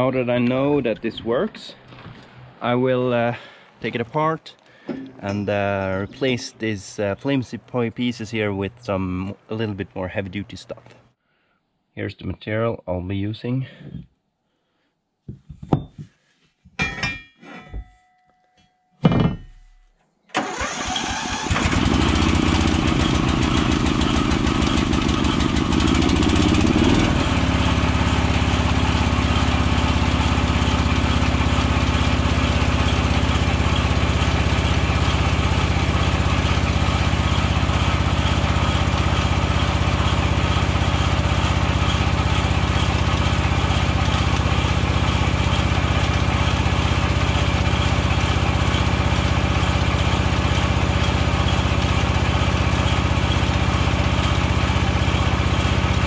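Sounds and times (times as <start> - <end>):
ride-on mower engine running: 20.4 - 56.0.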